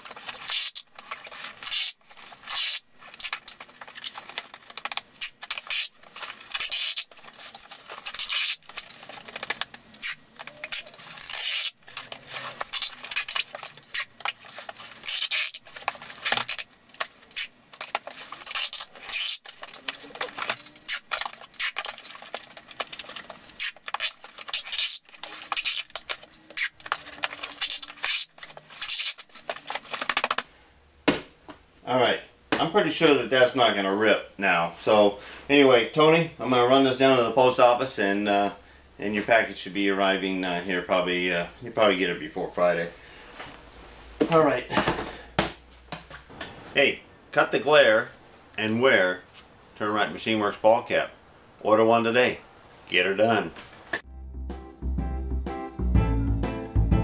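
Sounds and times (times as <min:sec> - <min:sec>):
packing tape screeching: 0:00.0 - 0:30.4
tape dispenser rattling: 0:00.0 - 0:30.4.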